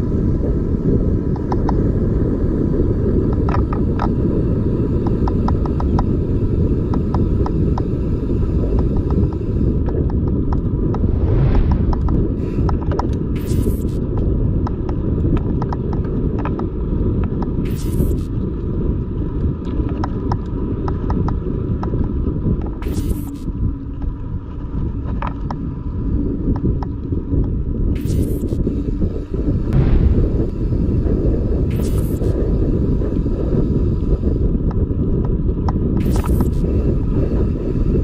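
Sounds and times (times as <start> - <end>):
wind buffeting microphone: 0.0 - 38.0
bike clicks and rattles: 1.0 - 11.0, 12.4 - 29.5.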